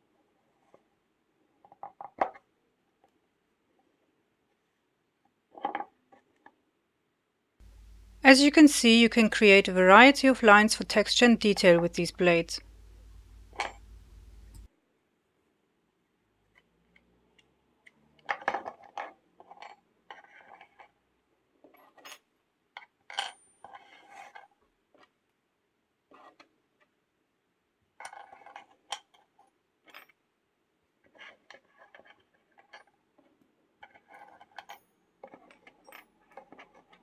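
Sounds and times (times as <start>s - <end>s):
small metal blades clinking: 13.3s - 14.7s.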